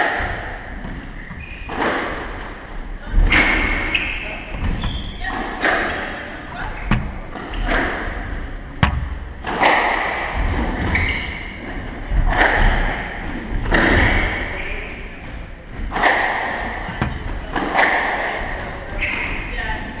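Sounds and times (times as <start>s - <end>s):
squash ball hitting rackets and walls: 0.0s - 19.4s
shoes squeaking on wooden floor: 0.7s - 2.5s, 3.1s - 7.8s, 10.5s - 11.7s, 13.7s - 15.9s, 18.8s - 19.7s.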